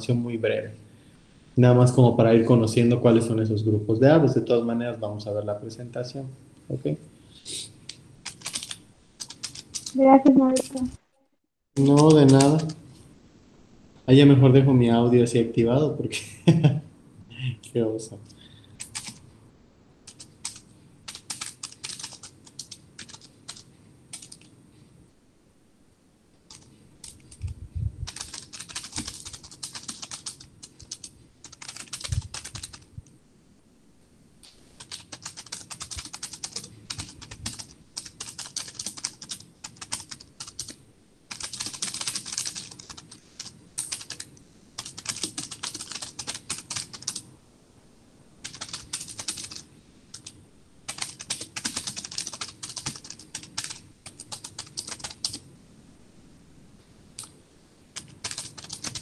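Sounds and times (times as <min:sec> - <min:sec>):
typing on keyboard: 0:07.9 - 0:10.0, 0:11.8 - 0:12.8, 0:18.8 - 0:19.2, 0:20.1 - 0:24.5, 0:26.5 - 0:32.9, 0:34.8 - 0:47.2, 0:48.4 - 0:55.4, 0:58.0 - 0:59.0.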